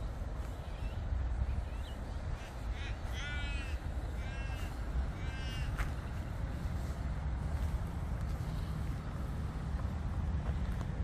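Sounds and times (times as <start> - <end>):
crow cawing: 2.3 - 6.2.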